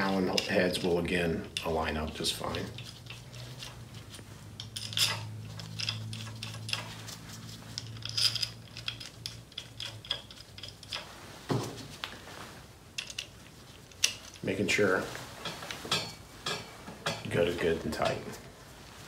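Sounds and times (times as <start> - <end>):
small metal parts clinking: 2.6 - 11.1, 13.0 - 14.4.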